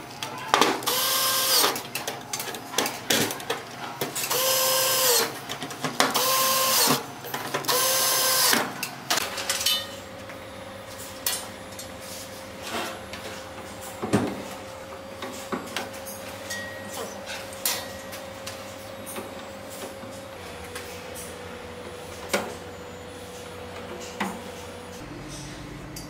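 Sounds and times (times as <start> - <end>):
cordless drill driving screws: 0.9 - 1.7, 4.3 - 5.3, 6.2 - 7.0, 7.7 - 8.6.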